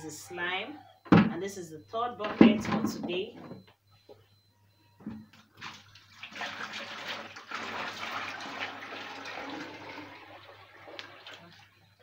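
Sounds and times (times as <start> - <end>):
water pouring into plastic bucket: 5.6 - 11.7.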